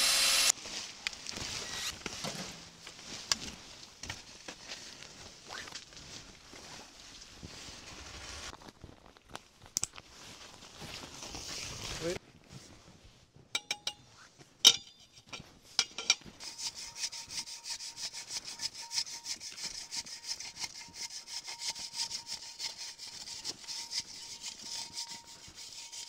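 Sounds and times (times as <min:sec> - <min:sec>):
hand saw cutting wood: 0:00.0 - 0:00.5, 0:01.5 - 0:02.0, 0:16.4 - 0:26.0.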